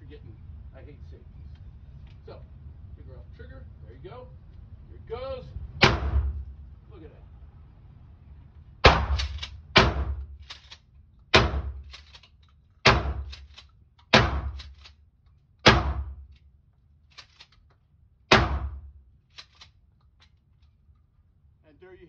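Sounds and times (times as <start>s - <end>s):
shotgun shots booming indoors: 5.8s - 6.6s, 8.8s - 10.7s, 11.3s - 12.2s, 12.8s - 15.0s, 15.6s - 16.4s, 18.2s - 19.7s
shotgun pump racking clack: 11.8s - 12.6s, 13.2s - 15.4s, 17.1s - 17.8s, 19.3s - 20.8s.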